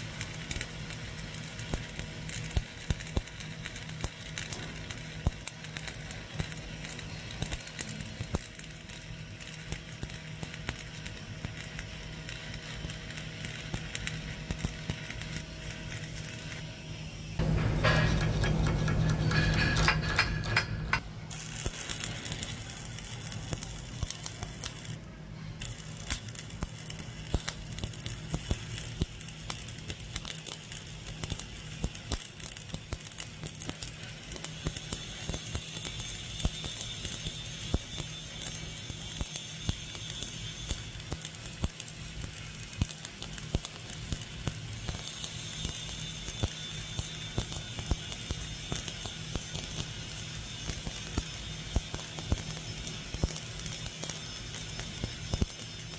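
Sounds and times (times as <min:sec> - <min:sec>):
welding arc crackling: 0:00.0 - 0:55.9
low hum: 0:13.4 - 0:27.7.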